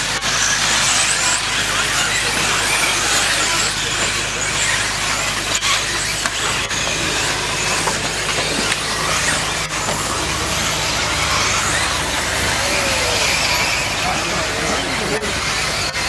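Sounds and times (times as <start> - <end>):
rc car motors whining: 0.0 - 16.0
tyres hissing on loose dirt: 0.0 - 16.0.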